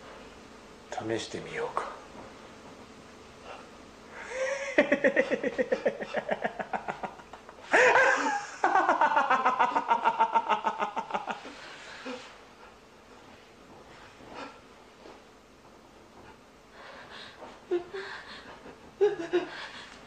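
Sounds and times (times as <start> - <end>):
man laughing loudly: 4.2 - 12.2, 17.7 - 19.8.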